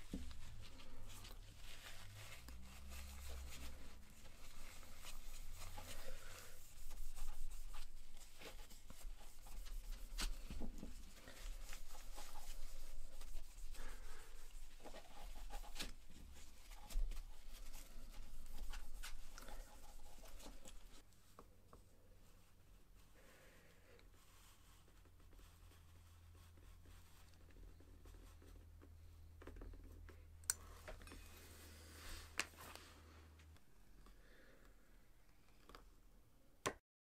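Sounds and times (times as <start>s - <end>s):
cloth rubbing over steel tool: 0.0s - 21.0s.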